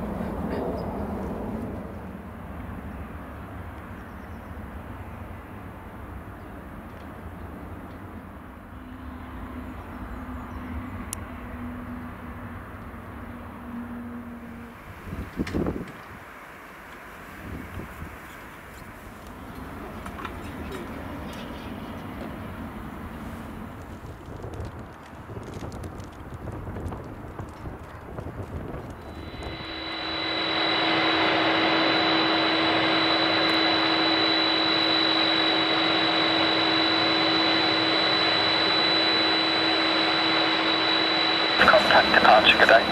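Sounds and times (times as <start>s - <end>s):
jet turbine whine: 0.0s - 24.1s, 28.6s - 42.9s
jet aircraft rumble: 17.6s - 42.9s
faint steady hum: 28.7s - 42.9s
short loud burst of noise: 29.0s - 42.9s.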